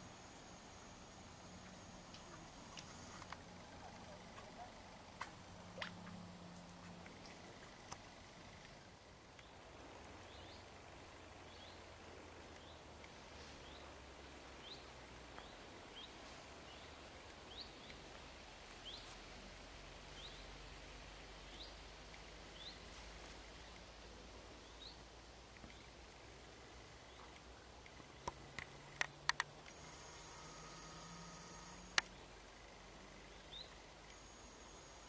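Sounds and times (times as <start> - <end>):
insect buzz: 18.8 - 35.0
sharp clicks: 27.9 - 29.8
bird chirping: 29.7 - 35.0.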